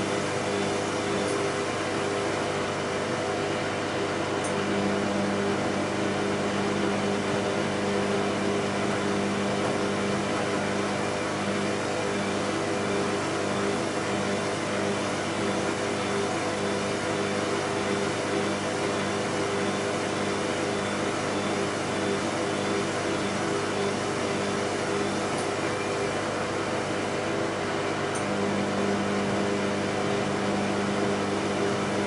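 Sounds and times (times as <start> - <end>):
washing machine spinning: 0.0 - 32.0.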